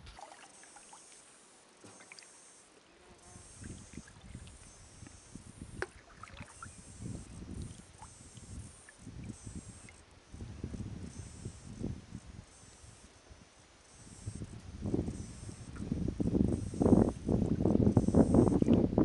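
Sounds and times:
paddle swishing water: 0.0 - 2.3, 5.8 - 6.9.

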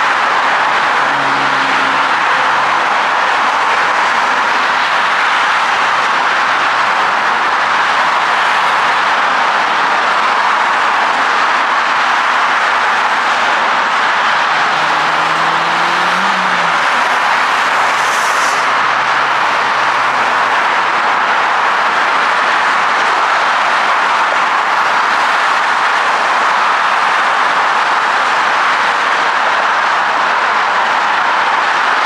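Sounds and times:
passing vehicle engine hum: 0.0 - 5.2, 12.7 - 22.3
freeway traffic roar: 0.0 - 32.0.

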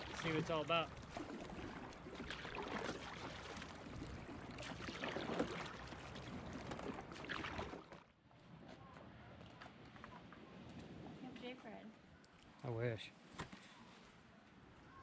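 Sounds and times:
oars dipping through water: 0.0 - 11.2
water lapping at a hull: 0.0 - 11.5.

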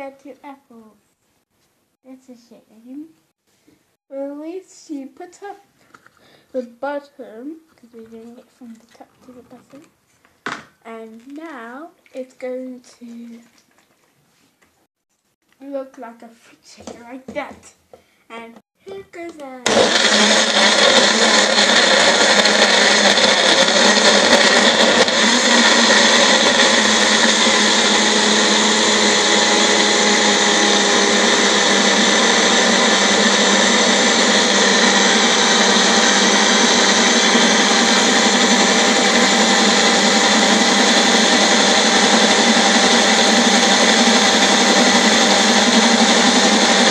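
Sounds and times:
blender whirring: 19.6 - 46.9.

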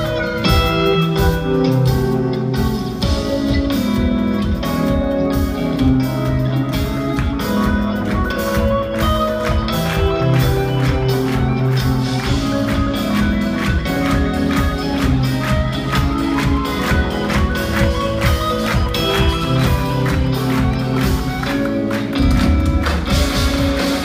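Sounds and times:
drum kit: 0.0 - 24.0
electric guitars: 0.0 - 24.0.

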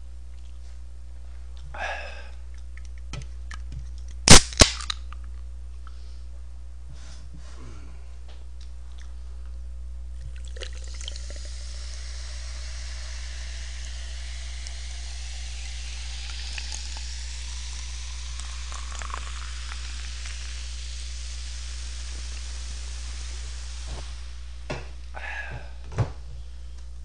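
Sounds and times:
bubbles crackling: 10.2 - 13.4, 15.9 - 21.0
soda fizzing: 10.2 - 24.7
soda pouring into a glass: 10.3 - 24.0.

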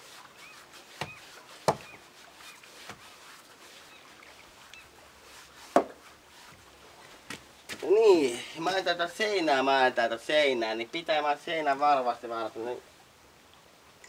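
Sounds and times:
faint bird chirps: 0.4 - 2.7
sharp knocks: 1.0 - 1.9.

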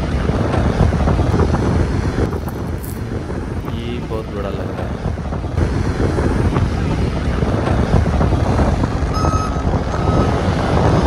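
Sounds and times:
vehicle rumbling: 0.0 - 11.0
wind: 0.0 - 11.0
reversing alarm beeping: 9.1 - 10.5.

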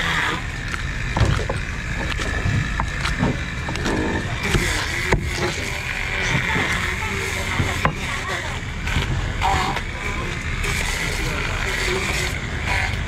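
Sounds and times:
low rumble: 0.3 - 12.7.

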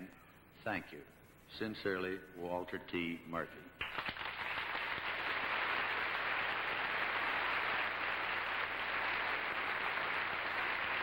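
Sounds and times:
audience applause: 3.8 - 11.0.

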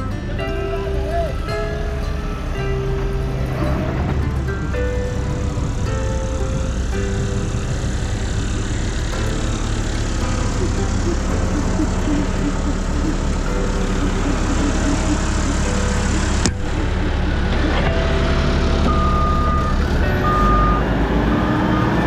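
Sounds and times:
heavy diesel engine running: 0.0 - 22.0.

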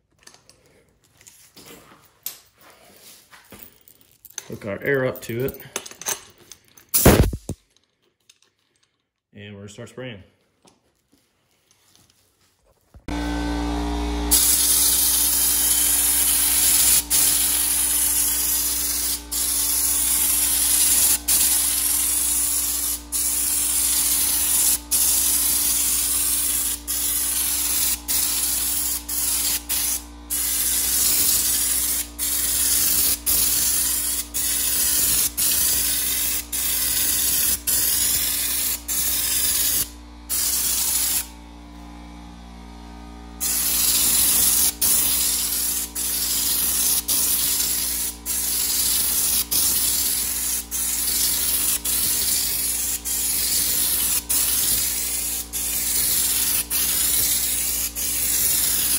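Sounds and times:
spray gun hissing: 14.3 - 41.3, 43.4 - 58.9.

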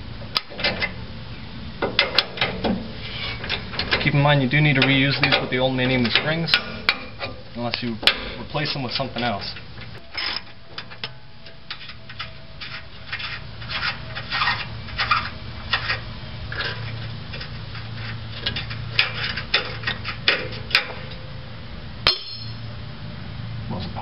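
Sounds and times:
sharp metal knocks: 22.0 - 22.6.

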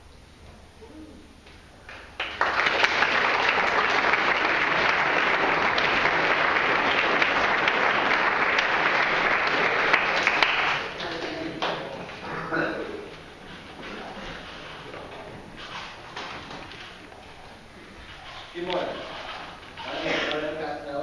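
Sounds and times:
audience applauding: 1.9 - 12.2.

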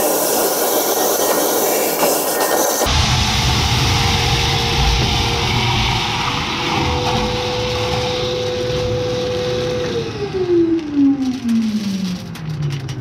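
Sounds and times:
hose sucking up beans: 0.0 - 9.8
shop vacuum whining: 0.0 - 12.5.

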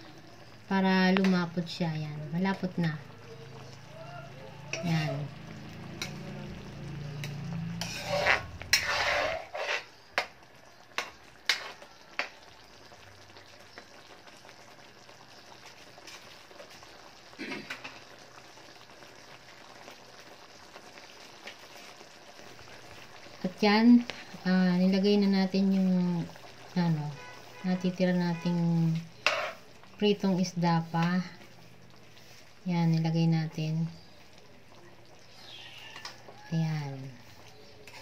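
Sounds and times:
sauce bubbling and sizzling: 0.0 - 38.0
metal spoon scraping a wok: 4.7 - 5.3, 6.0 - 6.3, 7.2 - 10.1, 29.2 - 29.7, 37.3 - 38.0.

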